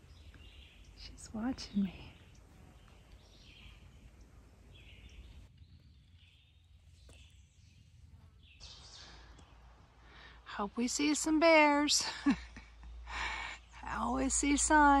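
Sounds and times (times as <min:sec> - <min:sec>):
distant bird calls: 0:00.0 - 0:15.0.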